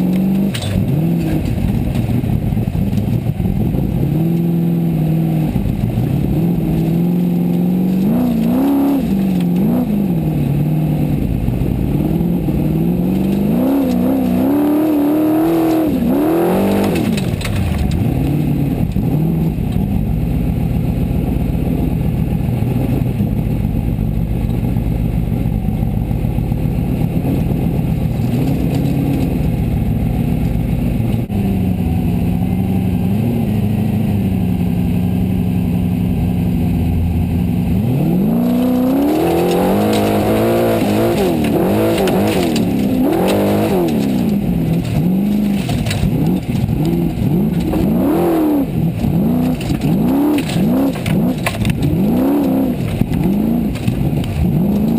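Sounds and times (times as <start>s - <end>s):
gravel clattering against car: 0.0s - 4.5s, 5.4s - 20.2s, 27.3s - 31.3s, 37.7s - 54.9s
buggy engine revving: 0.0s - 54.9s.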